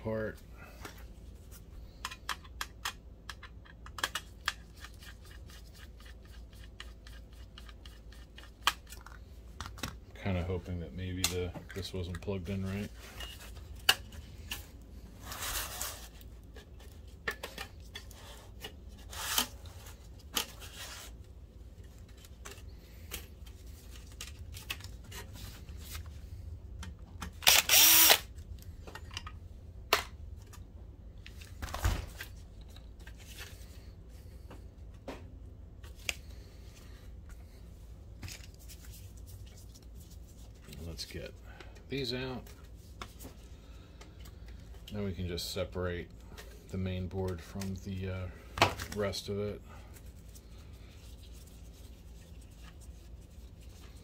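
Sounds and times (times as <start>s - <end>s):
clicks and knocks of metal parts: 2.0s - 5.1s
cordless drill running: 27.4s - 28.3s.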